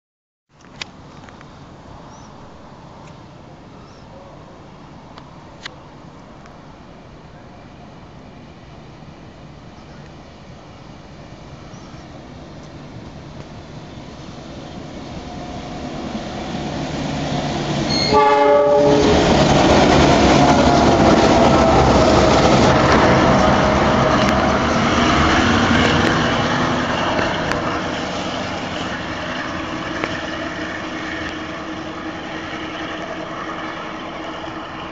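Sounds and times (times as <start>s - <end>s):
diesel locomotive engines: 0.7s - 34.9s
train wheel noise: 8.5s - 34.9s
locomotive horn blast: 17.9s - 19.4s.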